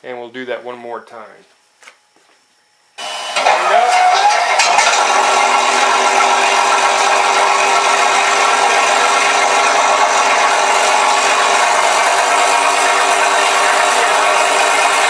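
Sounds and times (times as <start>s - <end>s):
recorded piston engine sound: 4.6s - 15.0s.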